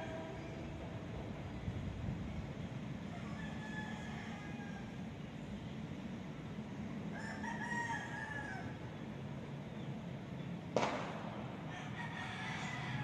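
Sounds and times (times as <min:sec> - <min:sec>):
distant rooster crowing: 0:03.0 - 0:05.3, 0:07.1 - 0:08.8, 0:11.5 - 0:13.0.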